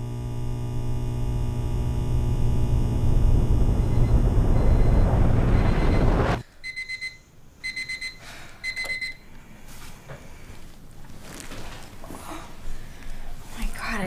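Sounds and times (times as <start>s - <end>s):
loud low rumble: 2.3s - 6.4s
alarm clock beeping: 3.8s - 9.2s.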